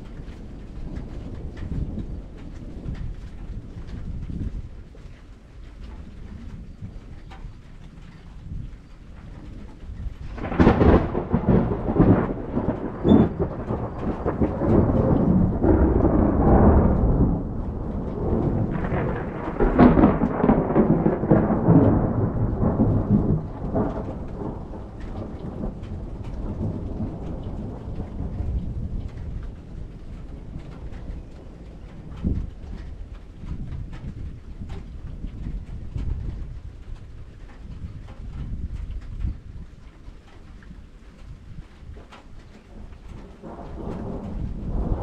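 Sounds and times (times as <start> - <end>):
rolling thunder rumble: 0.0 - 45.0
thunder crack: 9.4 - 37.2, 42.0 - 45.0.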